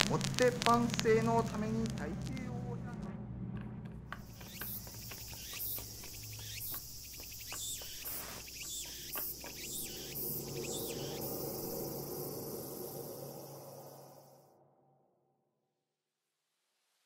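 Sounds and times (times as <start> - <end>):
insects chorus: 0.0 - 2.8, 4.2 - 14.7.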